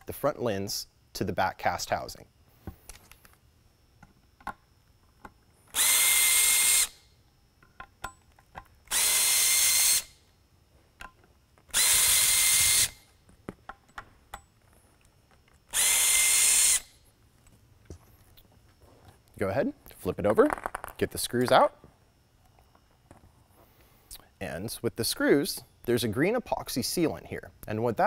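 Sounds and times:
cordless drill whining: 5.7 - 7.0, 8.9 - 10.2, 11.7 - 13.1, 15.7 - 17.0
bit clicks and handling: 20.2 - 21.6.

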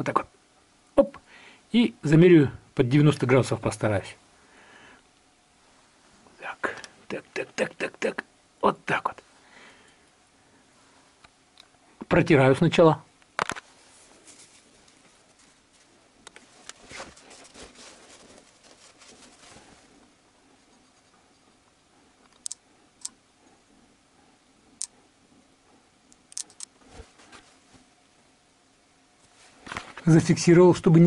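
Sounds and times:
faint rustling: 13.4 - 22.1, 26.8 - 28.0, 29.2 - 30.2
sharp metallic clicks: 22.2 - 23.2, 26.1 - 26.8.

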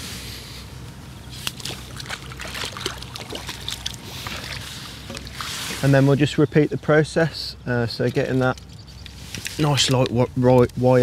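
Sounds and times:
water splashing and dripping: 1.4 - 5.8.

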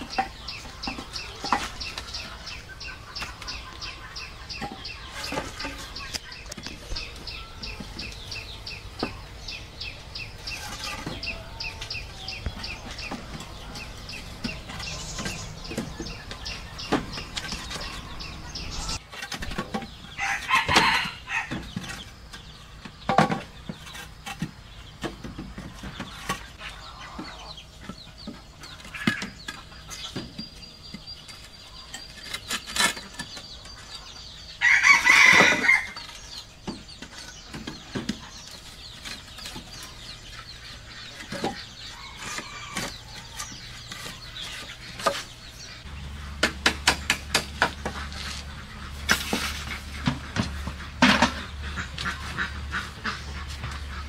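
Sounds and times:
chickens clucking: 0.0 - 54.0
bamboo poles knocking: 46.4 - 48.3.

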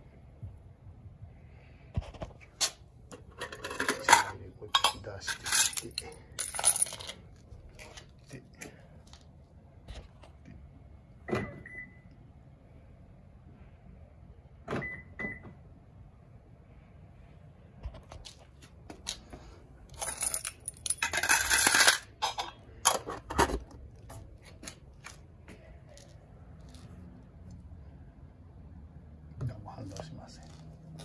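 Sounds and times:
metallic rattling and scraping: 2.6 - 7.2.

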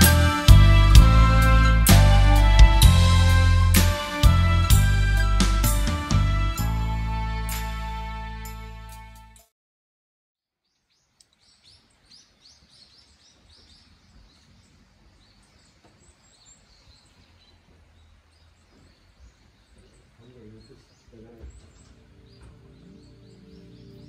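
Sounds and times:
small bird chirping: 10.6 - 24.0.

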